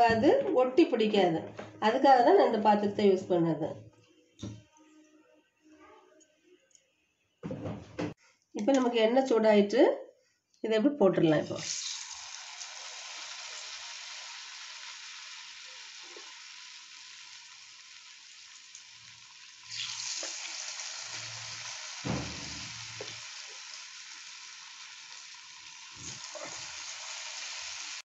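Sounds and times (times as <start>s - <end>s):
potato slices sizzling in hot oil: 11.6s - 28.0s.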